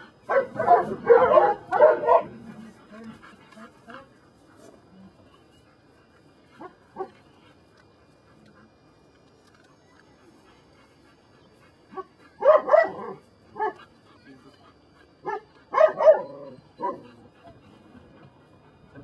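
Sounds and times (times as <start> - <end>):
dog barking: 0.3 - 2.4, 12.0 - 13.8, 15.2 - 17.1.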